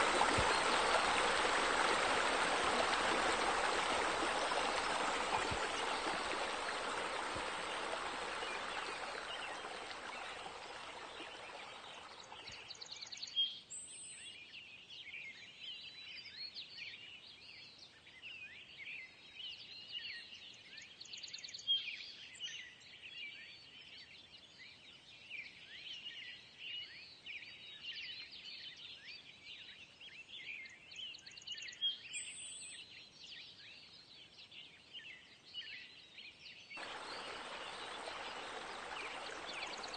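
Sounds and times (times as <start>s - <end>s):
running splashing water: 0.0s - 12.8s, 36.8s - 39.9s
small birds chirping: 0.0s - 13.4s, 36.8s - 39.9s.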